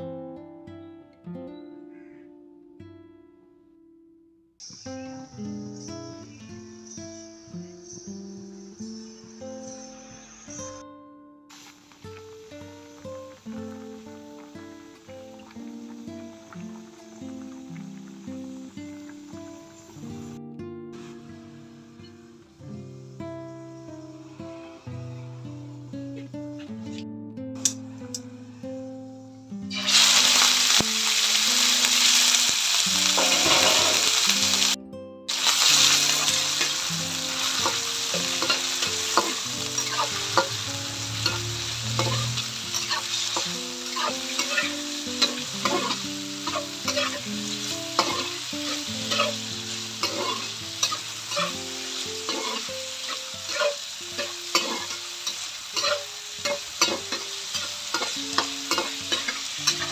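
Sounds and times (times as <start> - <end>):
chicken sizzling in hot oil: 11.5 - 19.9, 29.7 - 59.9
metal spatula scraping wok: 33.0 - 34.8, 35.4 - 59.9.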